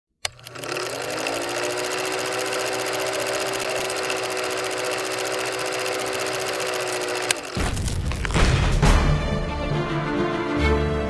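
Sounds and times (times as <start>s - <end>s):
fast mechanical clatter: 0.2s - 8.0s
sudden hit: 7.6s - 9.4s.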